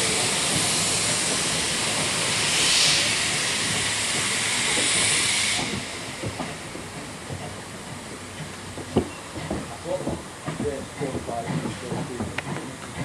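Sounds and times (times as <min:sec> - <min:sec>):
loud steam hiss: 0:00.0 - 0:08.6, 0:09.6 - 0:13.0
faint train knocks: 0:00.1 - 0:13.0.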